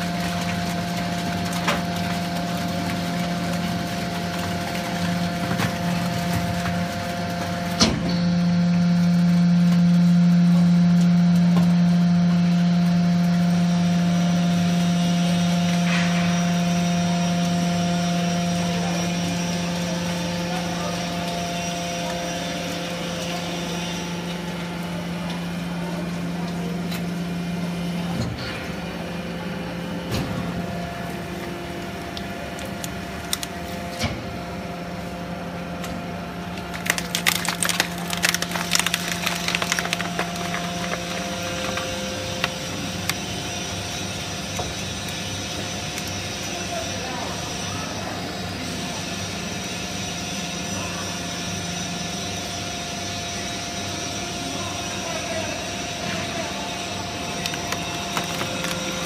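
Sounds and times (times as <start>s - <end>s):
baling press motor humming: 0.0s - 59.0s
cans crunching in press: 36.5s - 43.6s, 57.2s - 59.0s.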